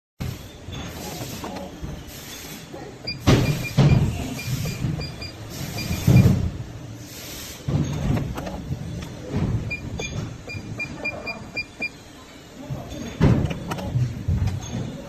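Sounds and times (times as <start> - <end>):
short high electronic beeps: 3.1 - 6.3.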